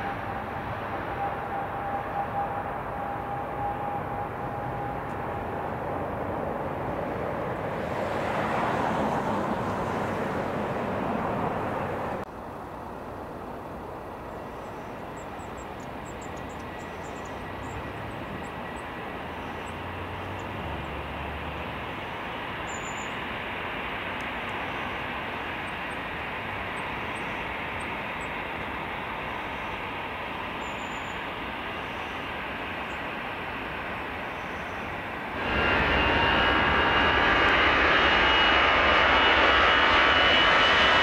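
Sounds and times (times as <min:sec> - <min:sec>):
jet engine at low power: 0:00.0 - 0:41.0
turboprop airliner climbing: 0:00.0 - 0:41.0
low rumble: 0:35.4 - 0:41.0.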